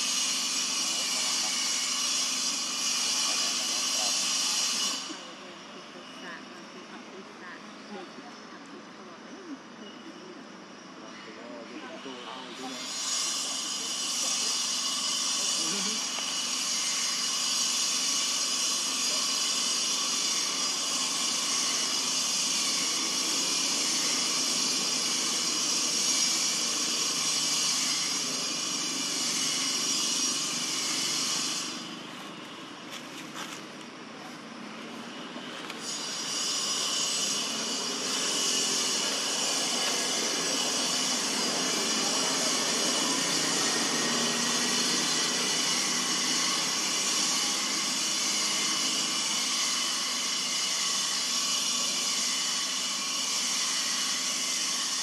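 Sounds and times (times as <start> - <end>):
insects buzzing: 0.0 - 55.0.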